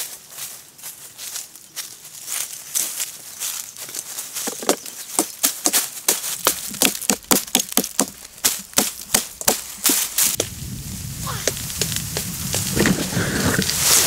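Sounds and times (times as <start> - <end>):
blade chopping wood: 4.6 - 10.5.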